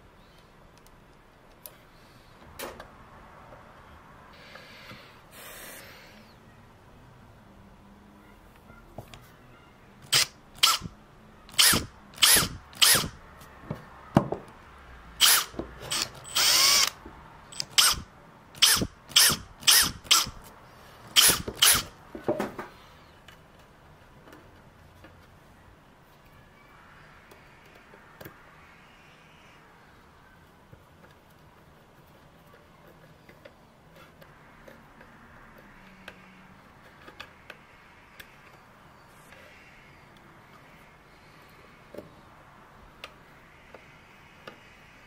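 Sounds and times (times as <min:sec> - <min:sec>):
power drill boring into wood: 0:10.1 - 0:10.9, 0:11.5 - 0:13.2, 0:15.2 - 0:17.0, 0:17.6 - 0:20.4, 0:21.2 - 0:21.9.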